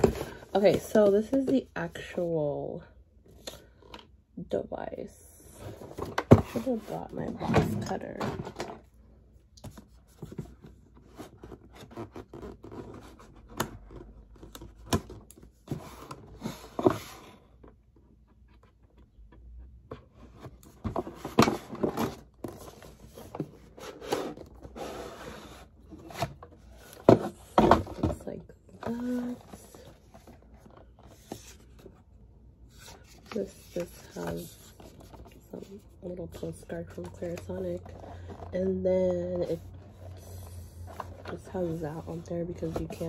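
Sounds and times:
cardboard packaging scraping: 0:10.2 - 0:14.8.

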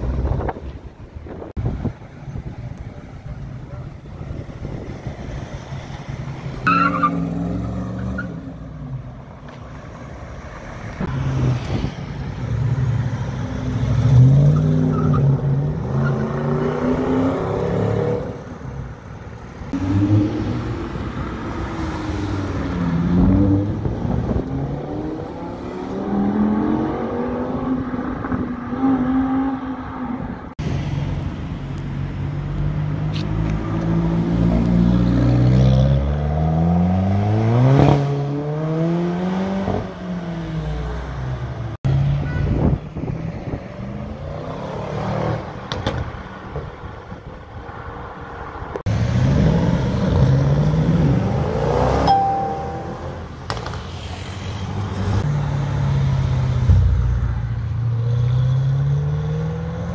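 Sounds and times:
car engines revving past: 0:10.5 - 0:42.2, 0:47.7 - 0:59.9.

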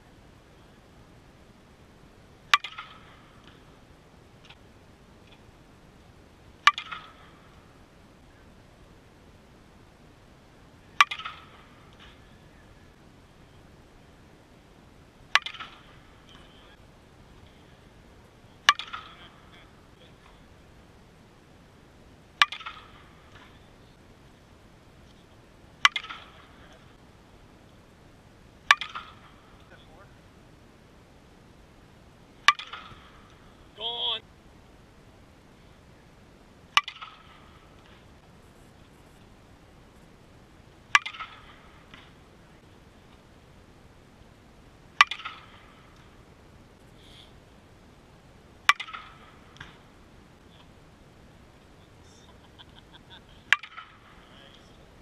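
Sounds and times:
bat hitting ball with ringing ping: 0:02.5 - 0:03.7, 0:06.6 - 0:07.4, 0:11.0 - 0:12.2, 0:15.3 - 0:16.5, 0:18.6 - 0:19.4, 0:22.4 - 0:23.5, 0:25.8 - 0:26.6, 0:28.6 - 0:29.4, 0:32.4 - 0:33.4, 0:36.8 - 0:37.9, 0:40.9 - 0:42.2, 0:45.0 - 0:46.0, 0:48.7 - 0:49.8, 0:53.5 - 0:54.1.

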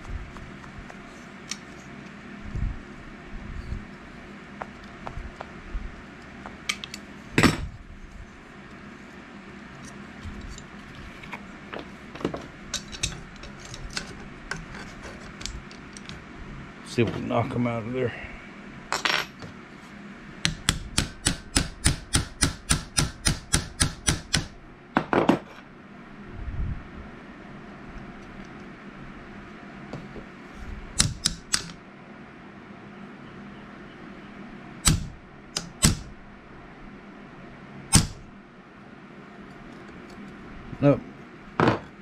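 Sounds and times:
hammer tapping a pin punch: 0:20.4 - 0:24.5, 0:31.0 - 0:31.8, 0:34.8 - 0:36.1.

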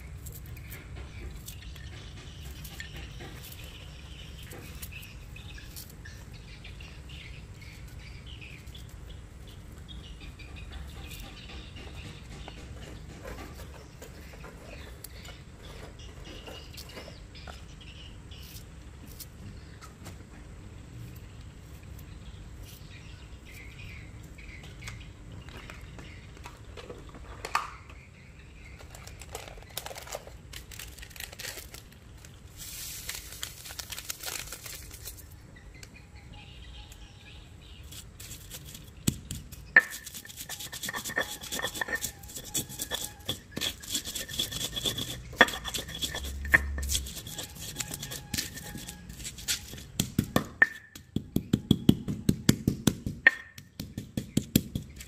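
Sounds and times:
salt sprinkling hiss: 0:32.5 - 0:35.2
stone pestle pounding in mortar: 0:39.0 - 0:55.0.

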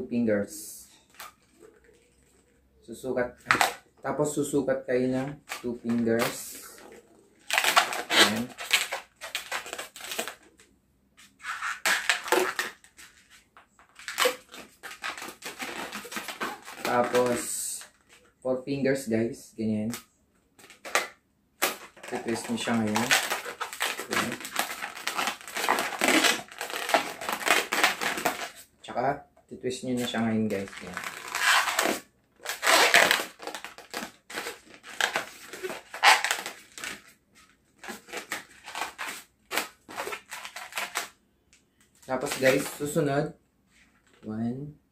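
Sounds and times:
balloon rubbing and creaking: 0:05.3 - 0:10.5, 0:11.3 - 0:13.3, 0:13.9 - 0:17.6, 0:21.6 - 0:28.7, 0:30.0 - 0:37.1.

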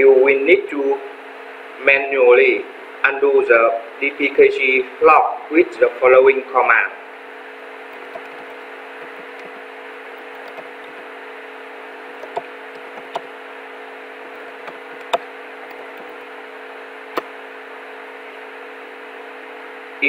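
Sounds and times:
low electrical hum: 0:00.0 - 0:20.0
microphone hiss: 0:01.6 - 0:20.0
sharp clicks: 0:07.9 - 0:09.5, 0:10.2 - 0:11.0, 0:12.2 - 0:13.3, 0:14.3 - 0:16.3.

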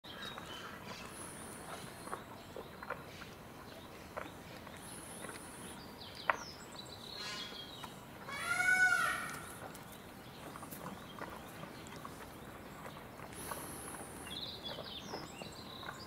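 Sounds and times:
birds chirping and whistling: 0:04.7 - 0:16.0
bird trilling: 0:08.3 - 0:09.6.

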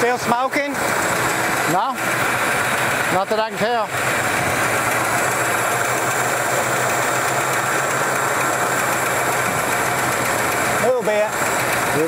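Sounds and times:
car engine idling: 0:00.0 - 0:12.0
engine lifter ticking: 0:00.0 - 0:12.0.

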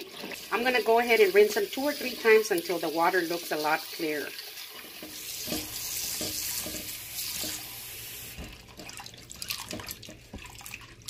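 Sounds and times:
faucet running into a bowl: 0:00.0 - 0:11.0
potatoes splashing in water: 0:05.1 - 0:11.0.

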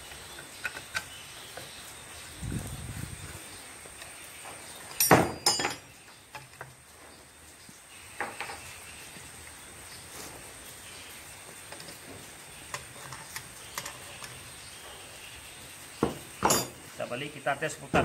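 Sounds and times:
metallic clank: 0:05.0 - 0:05.9, 0:16.4 - 0:16.8.

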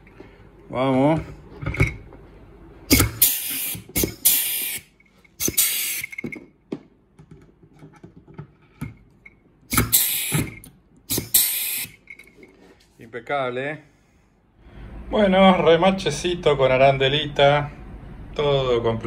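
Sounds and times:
air hissing: 0:02.9 - 0:06.2, 0:09.7 - 0:12.0.

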